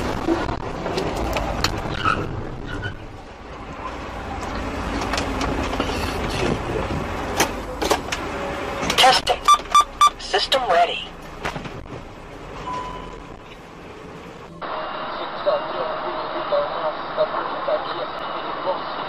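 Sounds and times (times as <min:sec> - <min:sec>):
car engine and road noise: 0:00.0 - 0:19.0.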